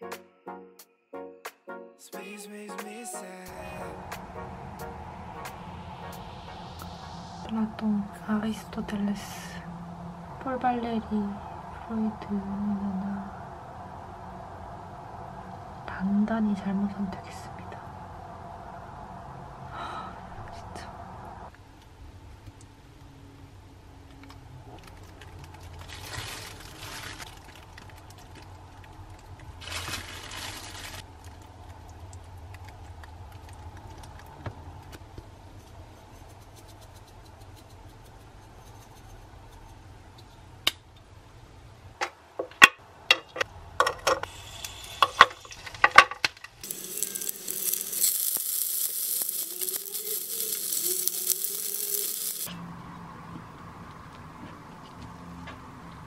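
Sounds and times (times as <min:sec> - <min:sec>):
low room hum: 0:03.6 - 0:56.0
dumplings sizzling in frying pan: 0:44.2 - 0:45.8, 0:46.6 - 0:52.5
hissing rustles: 0:46.6 - 0:52.5.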